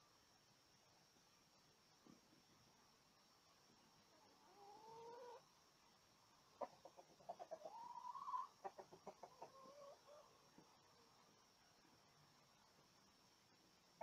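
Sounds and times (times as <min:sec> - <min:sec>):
chickens clucking: 0:04.1 - 0:05.5, 0:06.5 - 0:11.1.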